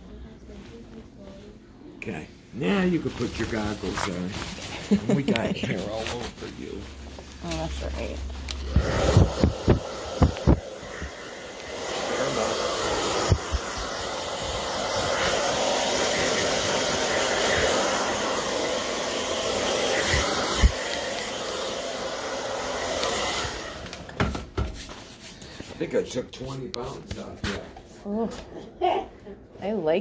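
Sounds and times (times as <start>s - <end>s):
hair dryer blowing: 7.5s - 24.5s.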